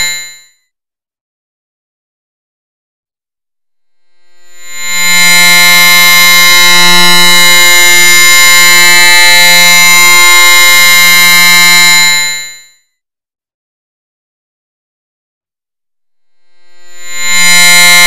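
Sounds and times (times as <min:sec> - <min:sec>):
harsh electronic buzzing tone: 0:00.0 - 0:00.5, 0:03.9 - 0:12.8, 0:16.4 - 0:18.0.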